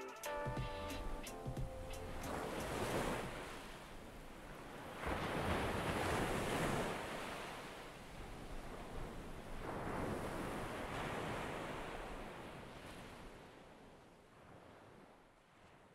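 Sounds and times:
waves breaking on shore: 0:01.0 - 0:15.9.

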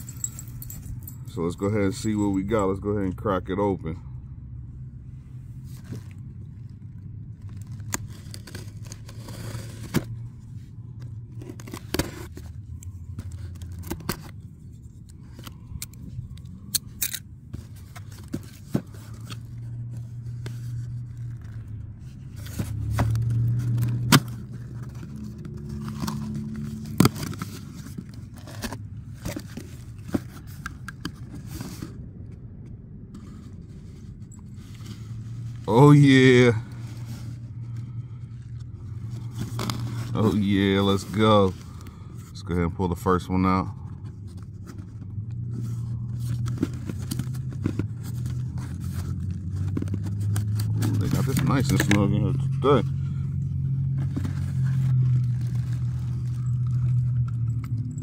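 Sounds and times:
cardboard scraping and tearing: 0:07.4 - 0:10.3.

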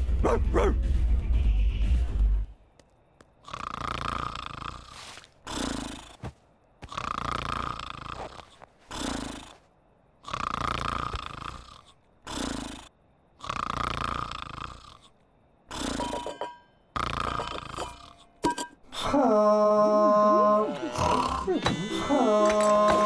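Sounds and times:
cartoon sheep snoring: 0:03.4 - 0:06.2, 0:06.8 - 0:16.2, 0:16.9 - 0:18.2, 0:20.3 - 0:22.4.

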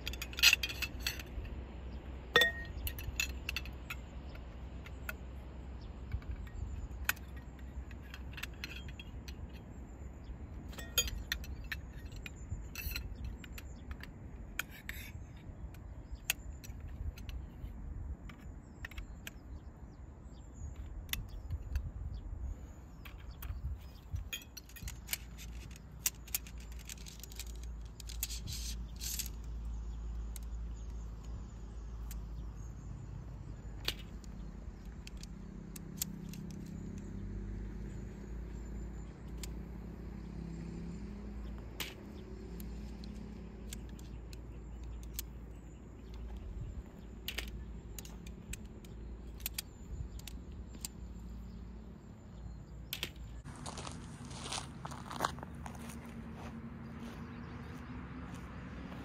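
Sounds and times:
small hard objects clinking: 0:02.3 - 0:04.0, 0:23.1 - 0:32.3.

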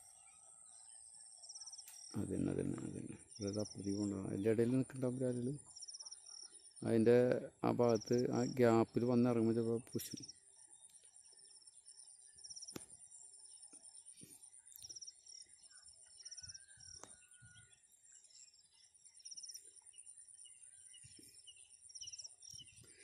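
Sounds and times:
insects trilling: 0:01.1 - 0:17.7.

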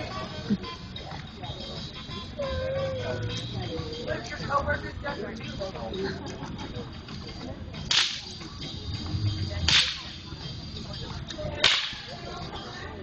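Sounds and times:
faint outdoor background noise: 0:00.0 - 0:13.0
sharp swishes through air: 0:09.6 - 0:10.2.

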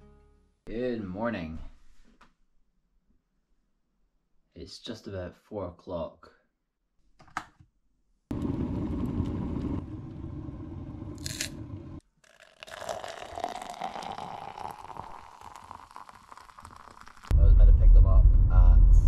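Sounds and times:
electric kettle boiling: 0:08.3 - 0:17.3
hot water pouring into a cup: 0:08.3 - 0:17.3.

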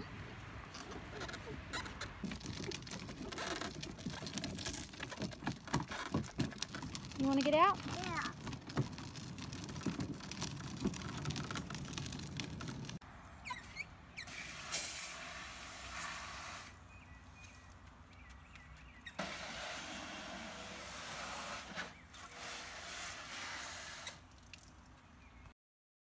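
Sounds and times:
plastic wagon rolling over pavement: 0:00.1 - 0:13.0, 0:17.6 - 0:23.8
hose nozzle spraying water: 0:14.3 - 0:16.8, 0:19.2 - 0:24.7.

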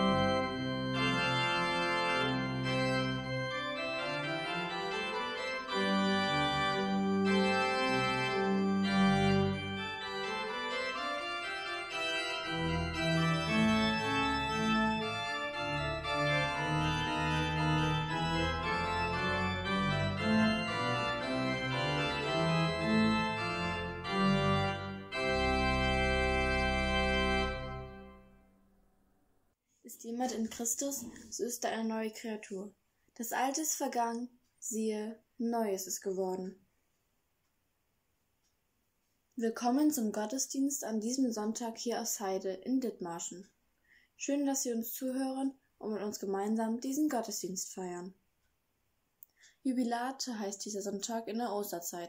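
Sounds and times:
church organ playing slow chords: 0:00.0 - 0:28.4.

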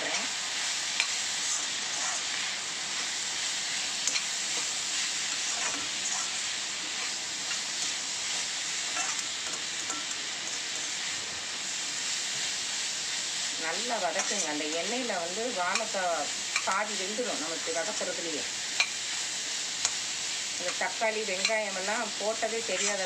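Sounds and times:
vegetables sizzling in oil: 0:00.0 - 0:23.0
metal spatula scraping a pan: 0:01.4 - 0:02.4, 0:03.8 - 0:11.2, 0:14.0 - 0:14.9, 0:22.5 - 0:23.0.

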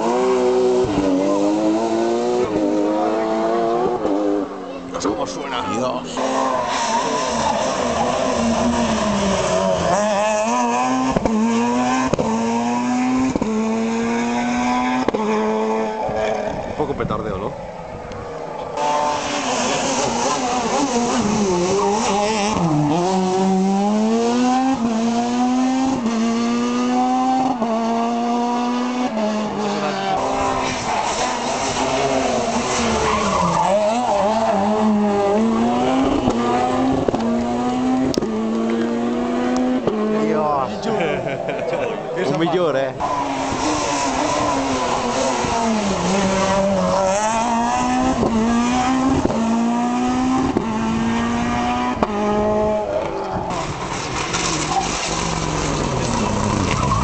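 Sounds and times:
rally car engine revving: 0:00.0 - 0:57.0
tyres scrubbing on tarmac: 0:53.6 - 0:57.0.

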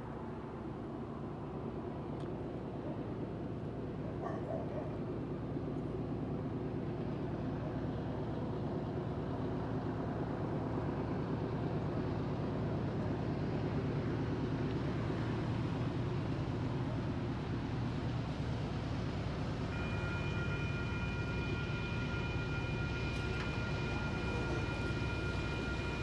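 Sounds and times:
distant diesel train rumble: 0:00.0 - 0:26.0.

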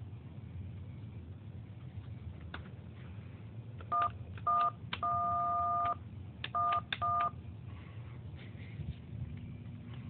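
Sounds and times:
touch-tone beeps: 0:03.9 - 0:06.0, 0:06.6 - 0:07.3.

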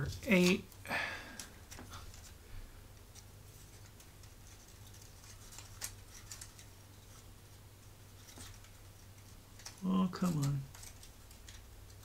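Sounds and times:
wooden puzzle pieces clicking: 0:03.1 - 0:06.7, 0:08.3 - 0:12.0.

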